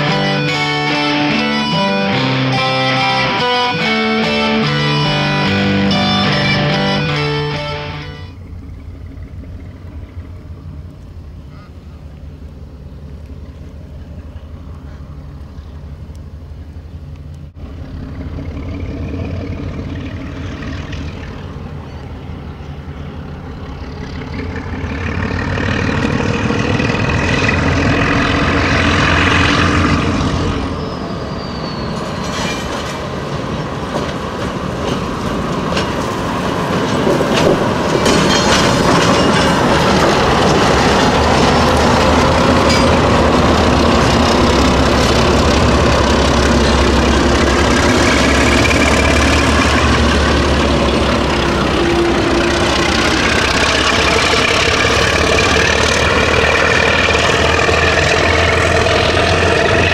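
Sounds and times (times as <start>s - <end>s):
diesel locomotive engines throbbing: 0.0s - 59.9s
wheels clicking over rail joints: 31.8s - 59.9s.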